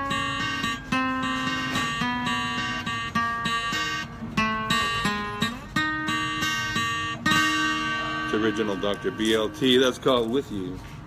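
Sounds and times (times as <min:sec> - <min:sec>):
acoustic guitar playing: 0:00.0 - 0:11.0.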